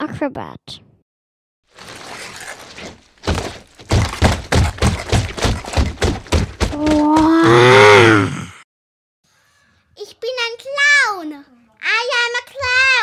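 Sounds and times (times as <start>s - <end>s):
drum roll thumps: 3.3s - 7.6s.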